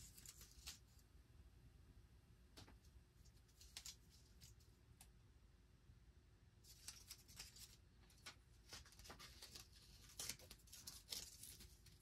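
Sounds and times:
tape rustling and crinkling: 0.0 - 1.0, 3.2 - 4.7, 6.6 - 12.0.

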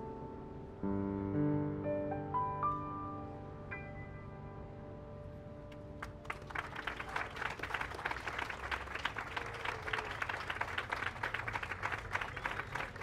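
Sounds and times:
crowd applauding: 6.0 - 13.0.

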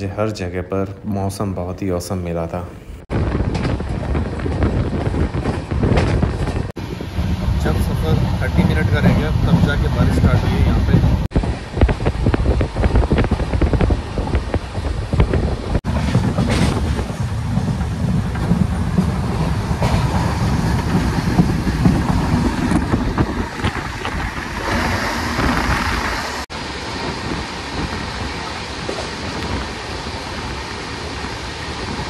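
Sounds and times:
wind rushing: 3.0 - 32.0
train wheels clattering over rails: 3.2 - 32.0.

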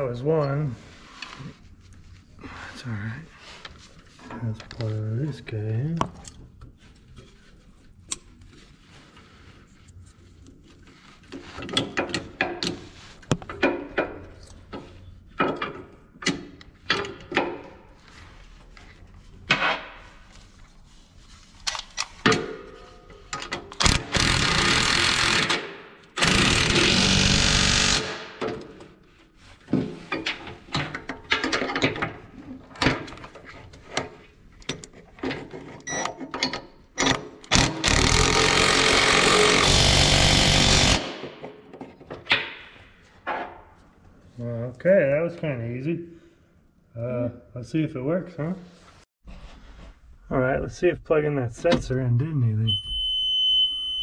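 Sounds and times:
cordless drill running: 26.2 - 28.1, 37.8 - 41.0.

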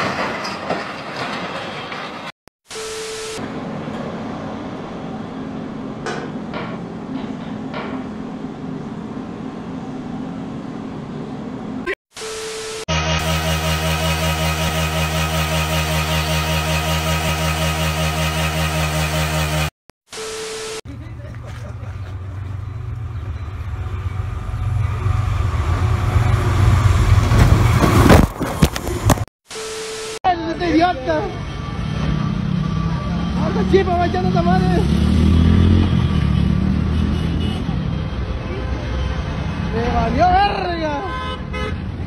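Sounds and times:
train locomotive rumble: 21.0 - 29.1.

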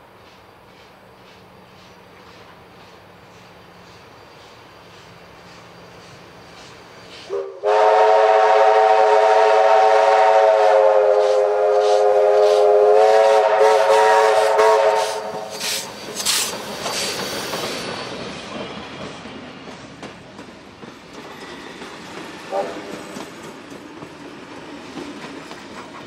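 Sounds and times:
locomotive exhaust beats: 5.5 - 17.7
steam locomotive whistle: 7.2 - 15.8, 22.5 - 23.0.

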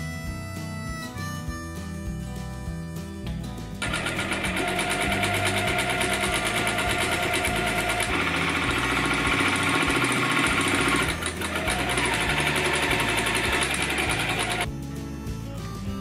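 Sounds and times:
sewing machine stitching: 3.8 - 14.7.

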